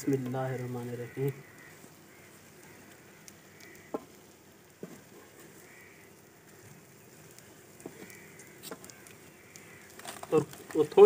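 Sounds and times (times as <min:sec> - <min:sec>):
meat sizzling in a pan: 0:00.0 - 0:11.0.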